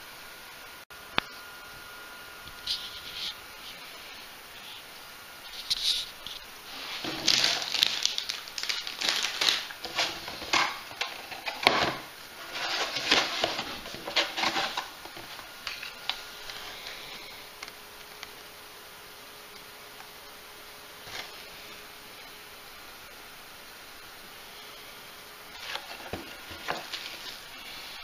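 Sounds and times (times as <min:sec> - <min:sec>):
packaging rustling: 0:05.5 - 0:17.2, 0:25.5 - 0:27.5.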